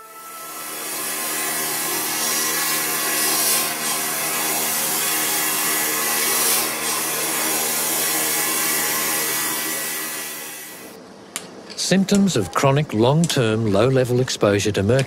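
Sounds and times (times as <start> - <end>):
amalgamator mechanical buzz: 0.0 - 11.0.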